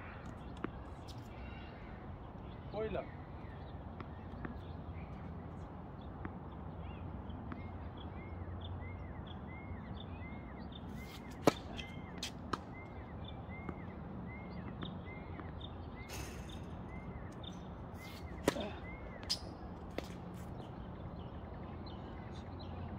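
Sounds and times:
tennis ball hit by racket: 0:11.2 - 0:12.7, 0:18.4 - 0:20.2
tennis ball bouncing on hard court: 0:11.2 - 0:12.8.

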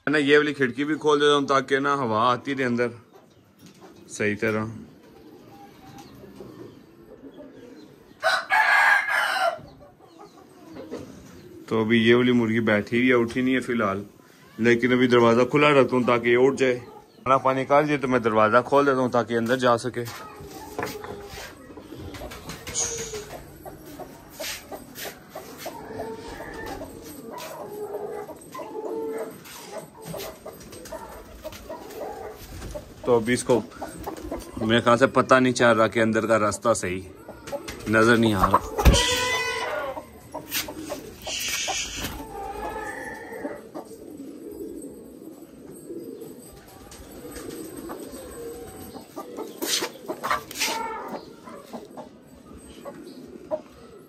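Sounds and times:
pigeons cooing: 0:00.0 - 0:54.0
hen clucking: 0:20.1 - 0:35.1, 0:37.2 - 0:44.6, 0:47.7 - 0:52.2.

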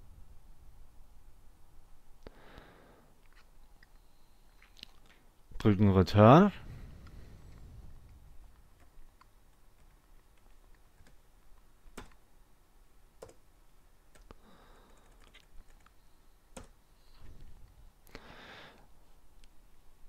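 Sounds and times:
keyboard and mouse clicks: 0:07.0 - 0:12.2, 0:13.2 - 0:13.4, 0:14.1 - 0:16.8.

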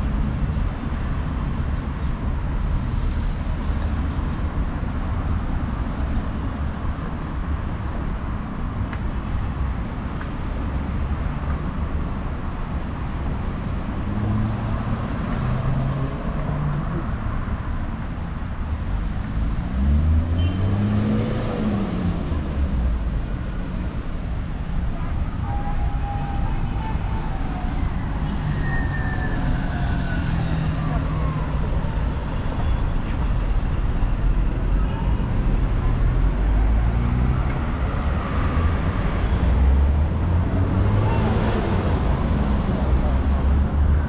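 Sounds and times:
rumble of passing cars: 0:00.0 - 0:44.0.

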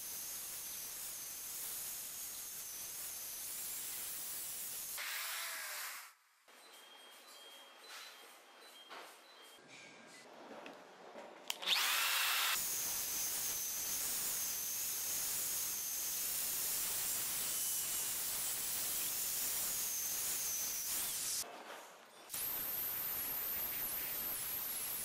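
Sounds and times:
rotary polisher motor whining: 0:11.6 - 0:21.4.

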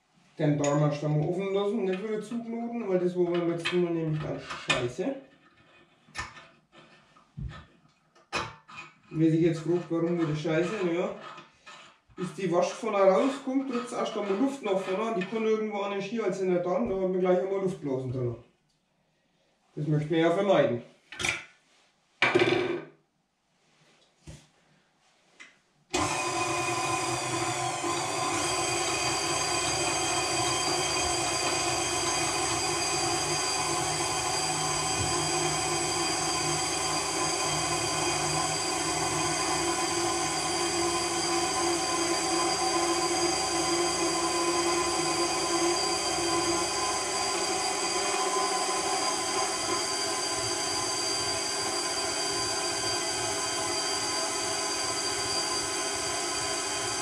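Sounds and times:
electric meat grinder whining: 0:09.7 - 0:15.5, 0:25.9 - 0:57.0.

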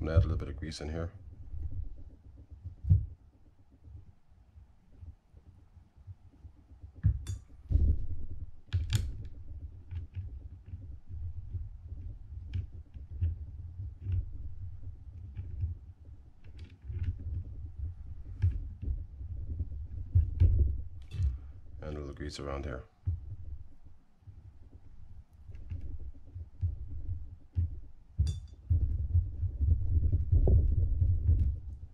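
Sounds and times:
low handling bumps: 0:00.0 - 0:04.2, 0:04.8 - 0:31.9
small metal clicks and taps: 0:06.3 - 0:07.6, 0:08.6 - 0:14.4, 0:27.5 - 0:28.6.

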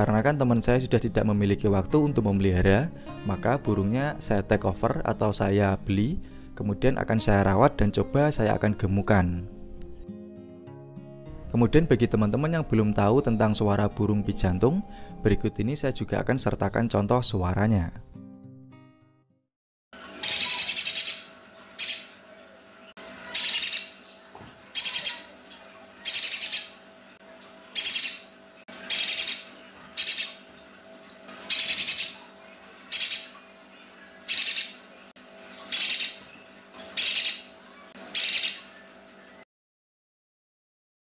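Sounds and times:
bird harsh rasping calls: 0:20.2 - 0:22.2, 0:23.3 - 0:24.0, 0:24.8 - 0:25.4, 0:26.0 - 0:26.8, 0:27.8 - 0:30.5, 0:31.5 - 0:32.3, 0:32.9 - 0:33.4, 0:34.3 - 0:34.9, 0:35.7 - 0:36.3, 0:37.0 - 0:37.5, 0:38.1 - 0:38.8.

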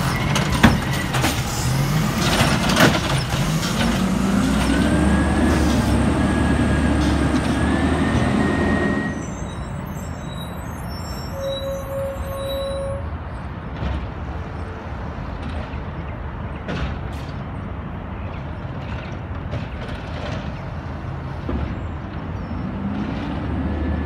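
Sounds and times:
garbage truck diesel engine: 0:00.0 - 0:11.4, 0:15.0 - 0:24.0.

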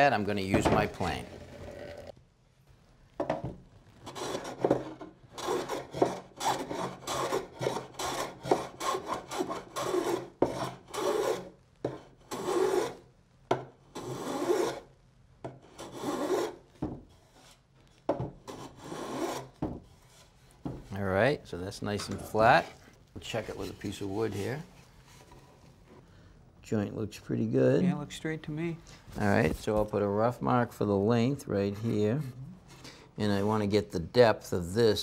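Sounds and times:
block plane shaving wood: 0:04.1 - 0:11.5.

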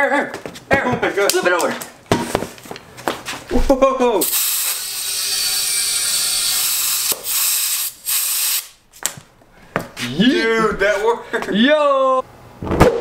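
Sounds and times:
compressed air hissing into tire: 0:04.2 - 0:05.0, 0:06.0 - 0:08.8.

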